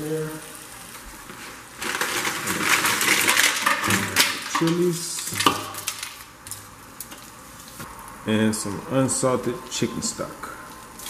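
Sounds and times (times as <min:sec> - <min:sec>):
garlic clattering into metal pot: 0:01.8 - 0:07.2.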